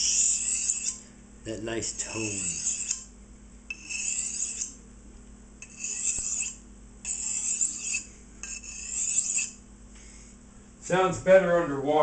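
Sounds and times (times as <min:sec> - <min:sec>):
knife scraping on sharpening stone: 0:00.0 - 0:01.0, 0:01.8 - 0:03.1, 0:03.7 - 0:04.8, 0:05.6 - 0:09.6.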